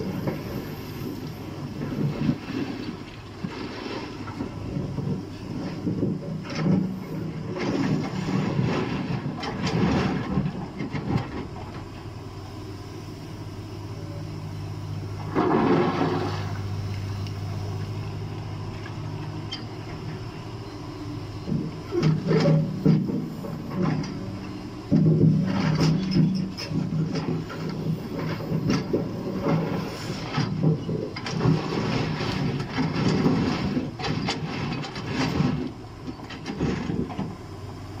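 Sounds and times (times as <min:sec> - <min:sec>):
excavator diesel engine running: 0:00.0 - 0:38.0
bucket scraping through rock: 0:15.3 - 0:16.8.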